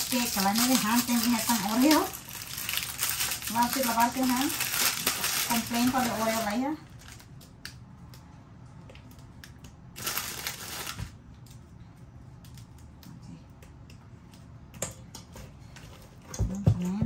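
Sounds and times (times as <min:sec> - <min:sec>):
cookies snapping and crunching: 0:00.0 - 0:08.3.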